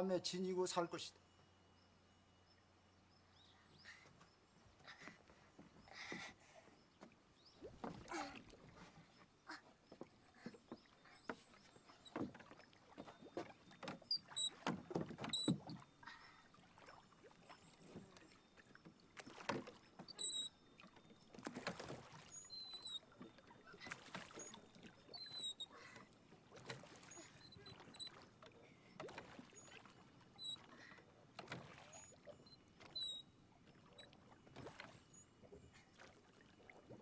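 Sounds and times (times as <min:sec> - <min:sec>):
water lapping at a boat: 0:00.0 - 0:37.0
wooden knocks on a rowboat: 0:12.1 - 0:15.8.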